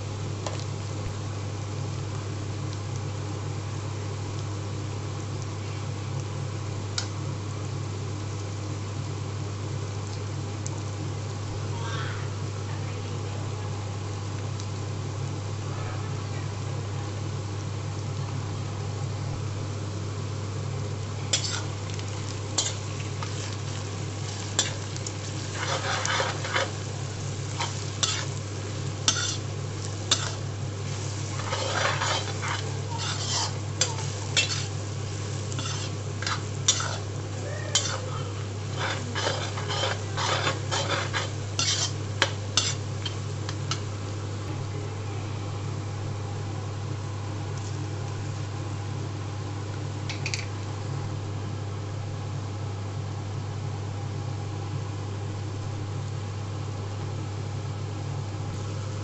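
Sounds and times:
onions sizzling in oil: 0:00.0 - 0:59.0
steady low hum: 0:00.0 - 0:59.0
spoon scraping and clinking a pan: 0:29.1 - 0:29.4, 0:31.4 - 0:34.7, 0:35.6 - 0:37.0, 0:37.8 - 0:38.0, 0:38.8 - 0:42.0.

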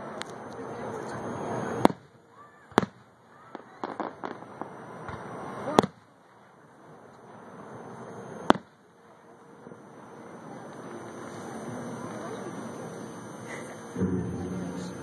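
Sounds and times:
firework shells booming: 0:01.8 - 0:02.1, 0:02.7 - 0:06.1, 0:08.4 - 0:08.8
crackling pops: 0:02.7 - 0:06.1, 0:08.5 - 0:08.8.

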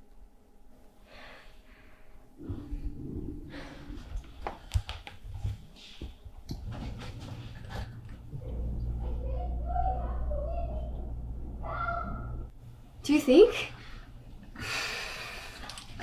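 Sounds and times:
low rumble: 0:02.4 - 0:05.5, 0:06.6 - 0:13.0.

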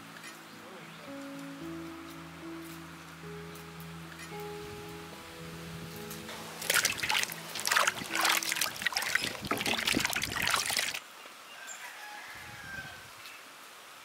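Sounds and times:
water splashing in steel basin: 0:06.6 - 0:11.0.

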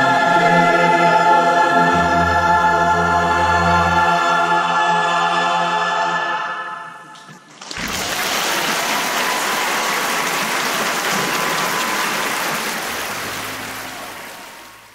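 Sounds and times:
audience applauding: 0:07.5 - 0:14.9.

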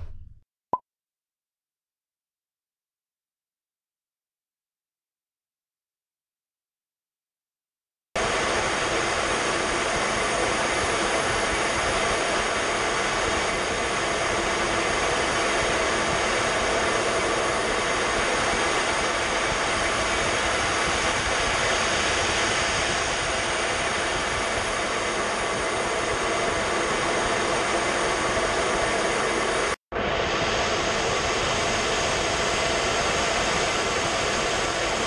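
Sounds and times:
jet cockpit engine and airflow roar: 0:08.2 - 0:35.0.

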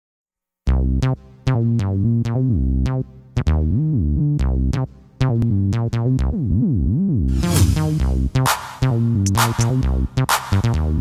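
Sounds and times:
sharp drum hits: 0:07.3 - 0:10.6.

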